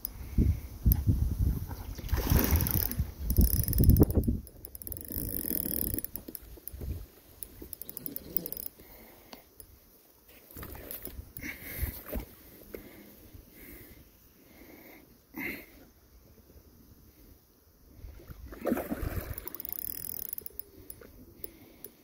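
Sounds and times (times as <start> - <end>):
fishing reel clicking: 2.5 - 8.8, 19.1 - 22.0.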